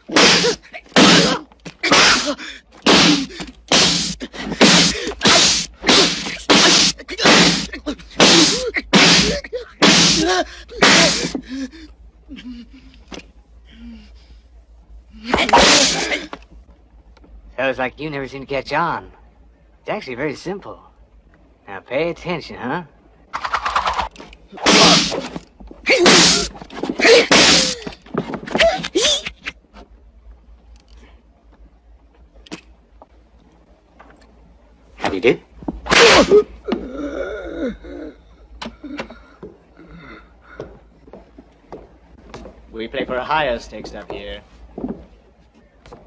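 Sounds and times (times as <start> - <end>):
loud slaps: 0.0 - 11.4, 23.4 - 29.5
swishing face slaps: 2.8 - 10.2
gasps and grunts: 35.9 - 40.7.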